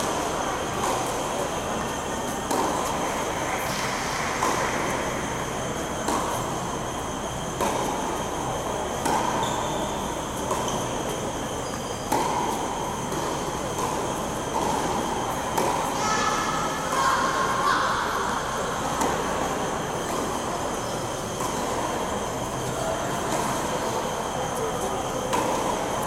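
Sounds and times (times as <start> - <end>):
constant high whine: 0.0 - 26.0
indoor hall rushing noise: 0.0 - 26.0
tennis ball strikes: 2.5 - 3.0, 7.6 - 8.1, 9.0 - 9.4, 12.1 - 15.9, 25.3 - 25.9.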